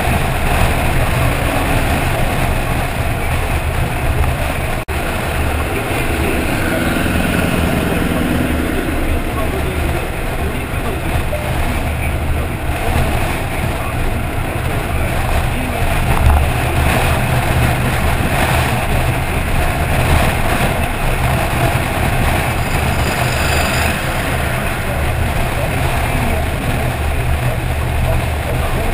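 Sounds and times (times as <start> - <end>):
road noise: 0.0 - 28.9
wind on microphone rumble: 0.0 - 28.9.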